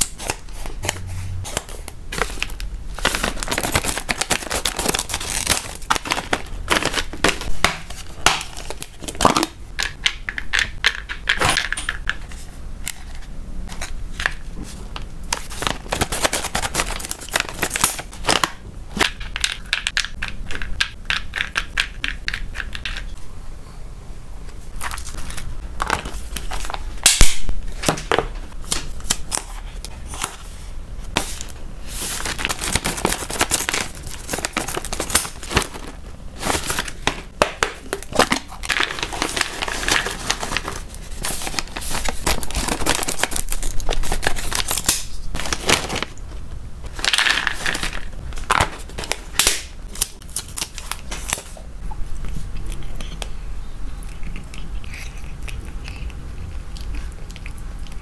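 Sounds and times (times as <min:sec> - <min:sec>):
plastic packaging crinkling: 0:00.0 - 0:10.4, 0:13.0 - 0:20.7, 0:24.7 - 0:30.5, 0:31.2 - 0:51.6.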